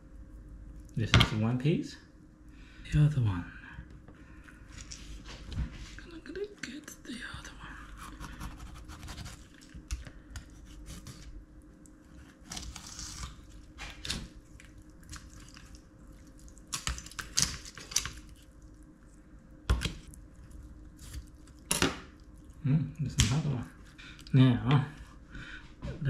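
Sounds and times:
knife cutting through fish: 8.0 - 9.6.

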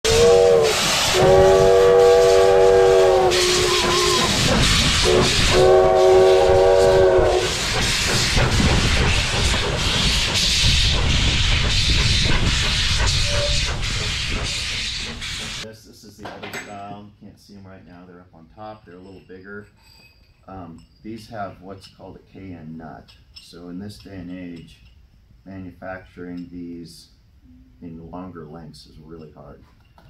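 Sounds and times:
steam whistle blasts: 0.0 - 8.1, 12.9 - 14.2
steam venting hiss: 0.0 - 15.7.

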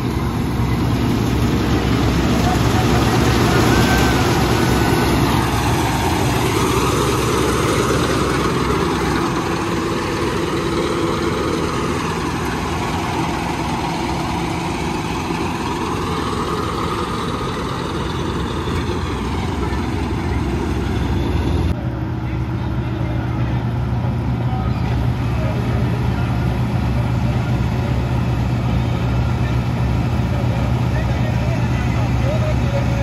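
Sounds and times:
combine harvester running: 0.0 - 33.0.

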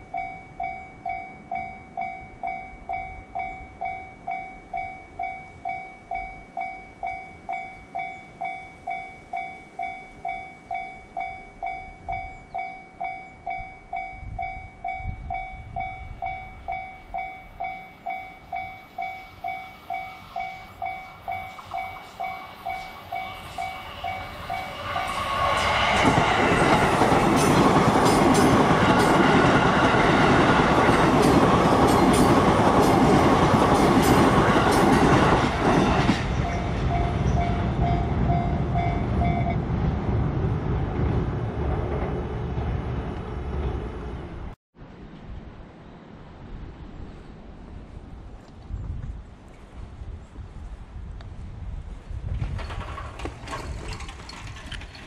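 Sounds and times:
level-crossing warning bell: 0.0 - 39.6
electric train passing: 0.0 - 48.0, 52.5 - 55.0
train wheels clattering: 18.6 - 39.5, 52.4 - 55.0.

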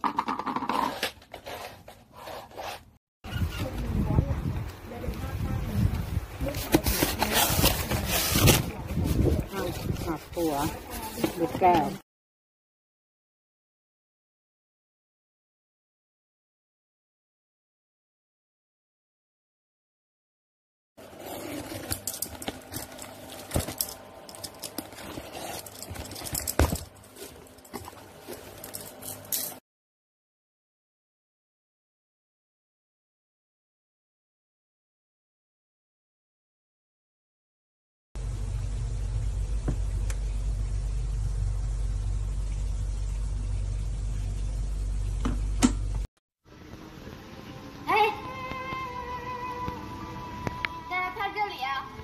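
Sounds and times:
cardboard box crackling and rustling: 6.4 - 12.0, 24.5 - 28.8
steady low hum: 38.2 - 47.8.

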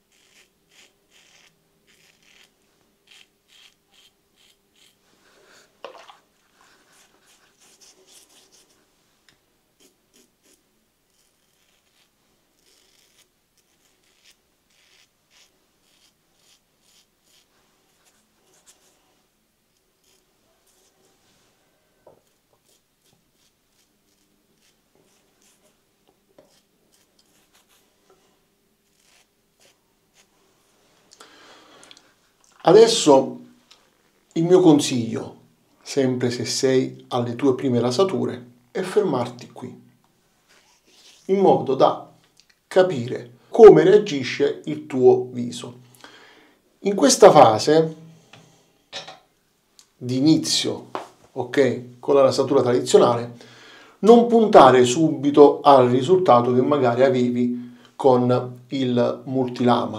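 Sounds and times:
razor scraping stubble: 0.1 - 5.0, 6.8 - 8.8, 9.8 - 19.0, 20.0 - 21.0, 22.2 - 25.8, 26.4 - 27.8, 28.8 - 30.3.

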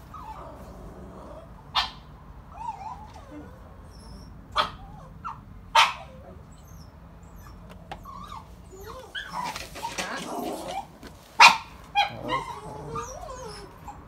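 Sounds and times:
dogs barking indoors: 0.0 - 14.0.

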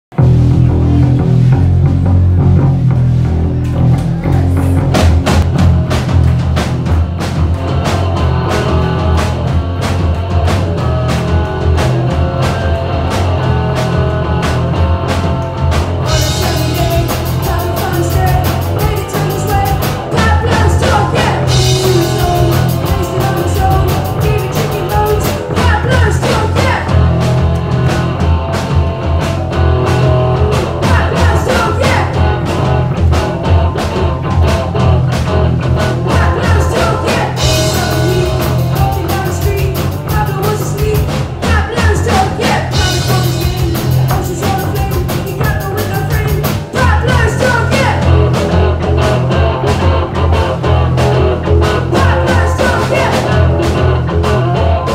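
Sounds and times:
drum beat: 0.1 - 54.9
live rock band playing: 0.1 - 54.9
boy singing: 16.1 - 27.0, 30.8 - 32.3, 36.0 - 48.2, 51.9 - 53.8.

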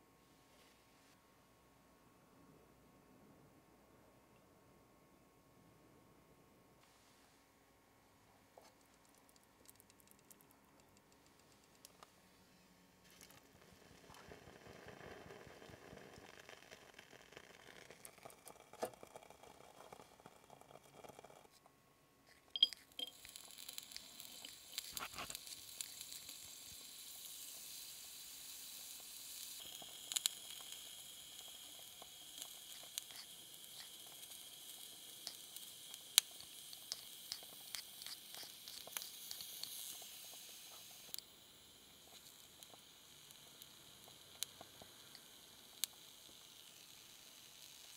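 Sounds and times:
small pops and clicks: 8.6 - 12.1, 22.6 - 27.6, 29.0 - 41.3, 41.9 - 47.9
broth simmering with hiss: 8.6 - 21.6, 22.3 - 47.9.

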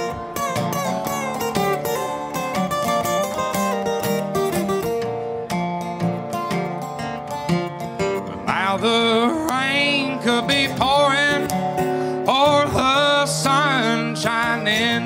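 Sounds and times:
acoustic guitar strumming: 0.0 - 15.0
resonator guitar: 0.0 - 15.0
man singing: 8.4 - 15.0.

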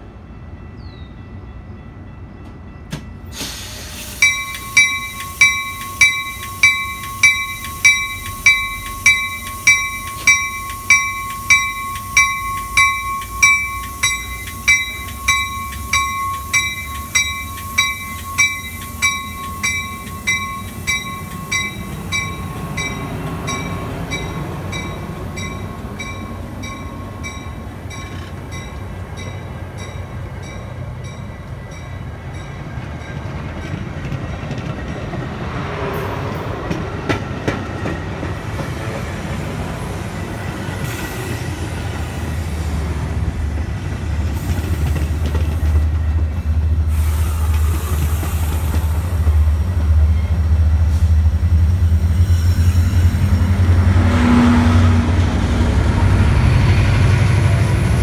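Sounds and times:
railroad crossing bell ringing: 0.0 - 35.2
train wheels rumbling on rails: 0.0 - 58.0.

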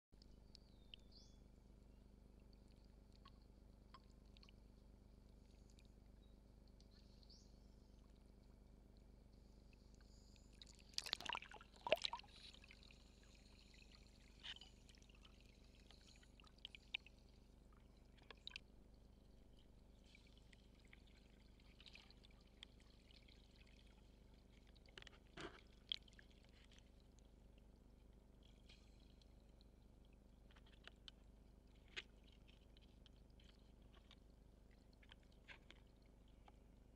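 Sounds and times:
water splashing and gurgling: 10.6 - 19.0.

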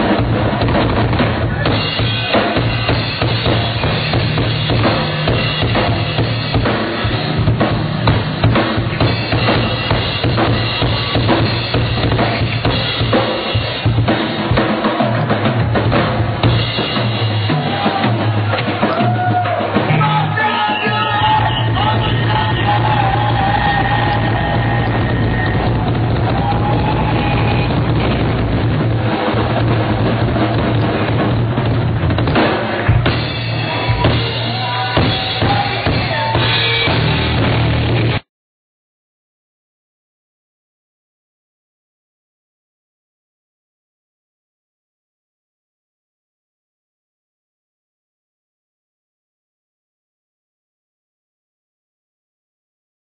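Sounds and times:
rock drum kit played fast: 0.0 - 38.2.

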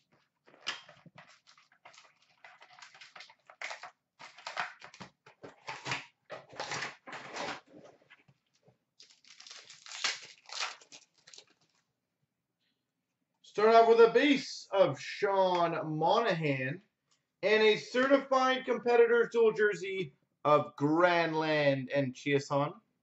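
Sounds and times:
foil wrapper tearing and crinkling: 0.0 - 7.7, 9.0 - 11.8.

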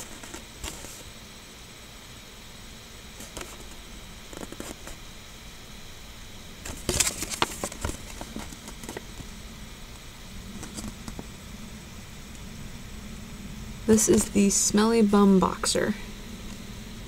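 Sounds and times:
paper and plastic toys rustling: 6.7 - 9.0.

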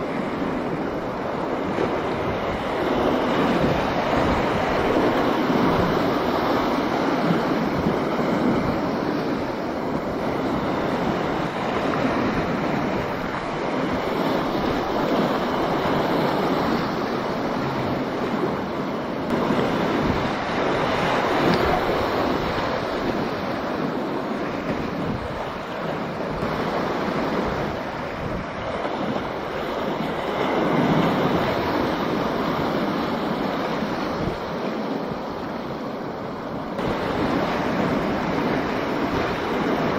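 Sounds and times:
whitewater rapids rushing: 0.0 - 39.9.

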